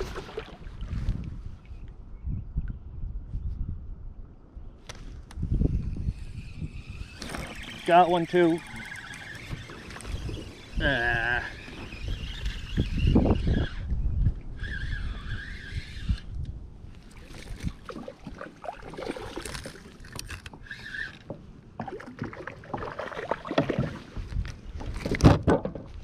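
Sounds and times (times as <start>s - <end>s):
knocks and clicks in a kayak: 21.2s - 26.0s.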